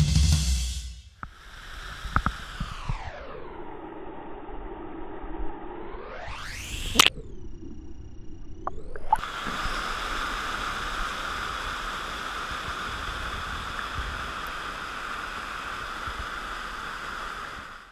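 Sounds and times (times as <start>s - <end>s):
waterfall rushing into pool: 1.2s - 3.5s, 9.0s - 17.9s.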